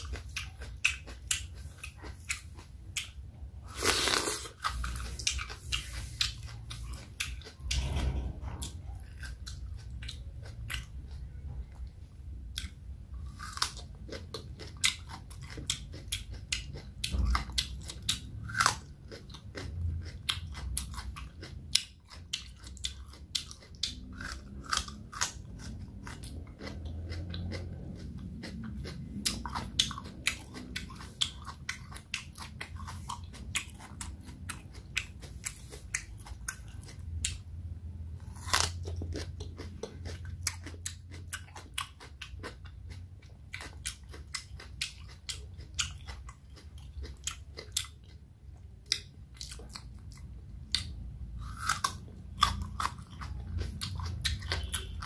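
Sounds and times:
cucumber crunching bites: 0:38.2 - 0:39.9.

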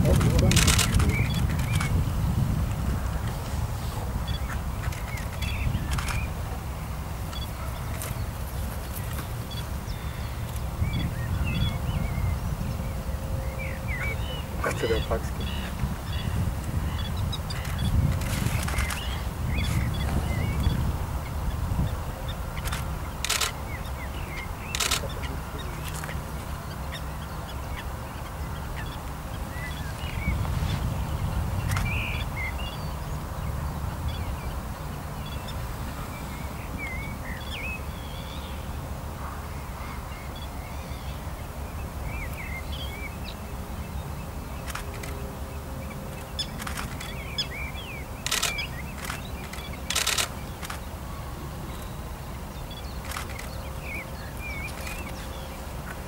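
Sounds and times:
low wind rumble: 0:00.0 - 0:56.0
sharp clicks: 0:00.1 - 0:02.0, 0:04.8 - 0:06.3, 0:22.6 - 0:23.6, 0:24.3 - 0:25.2, 0:48.2 - 0:50.9, 0:53.0 - 0:53.6.

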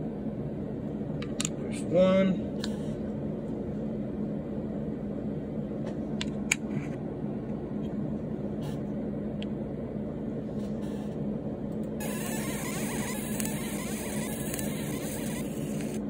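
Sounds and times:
small electric motor humming: 0:12.0 - 0:16.0.

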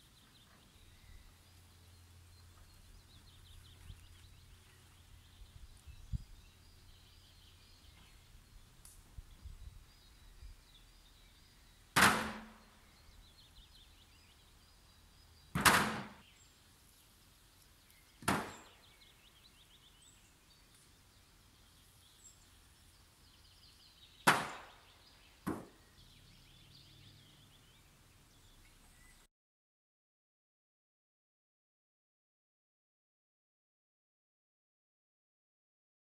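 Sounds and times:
sharp wooden cracks: 0:12.0 - 0:12.6, 0:15.5 - 0:16.2, 0:18.2 - 0:18.8, 0:24.2 - 0:24.8.

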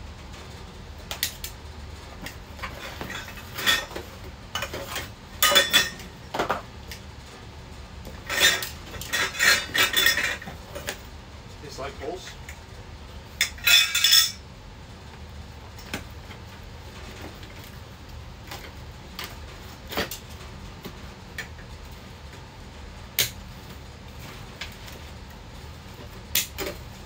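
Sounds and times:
metal poles clanking: 0:02.6 - 0:06.1, 0:08.2 - 0:10.6, 0:13.4 - 0:14.4.

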